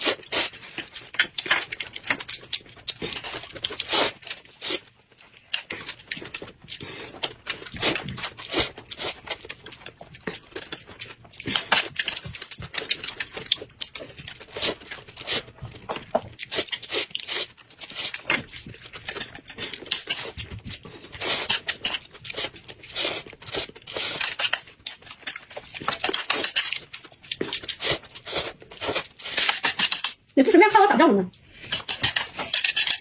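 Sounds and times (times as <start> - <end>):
people slurping noodles: 0.0 - 0.7.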